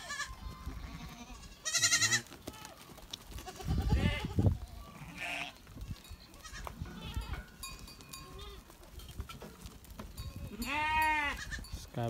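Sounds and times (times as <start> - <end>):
goats and sheep bleating: 0.0 - 12.0.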